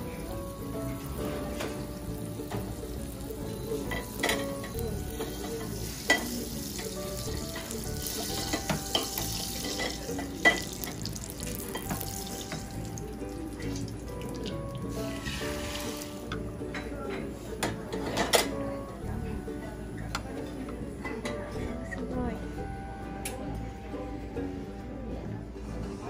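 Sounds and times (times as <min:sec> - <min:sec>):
butter sizzling in frying pan: 0:00.2 - 0:16.3.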